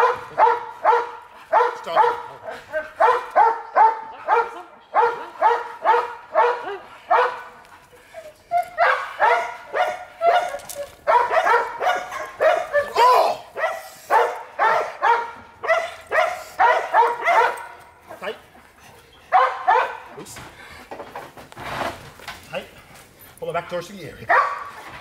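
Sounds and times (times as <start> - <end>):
dog barking sharply: 0.0 - 2.3, 3.0 - 7.4, 8.8 - 17.8, 19.3 - 20.1, 24.3 - 24.8.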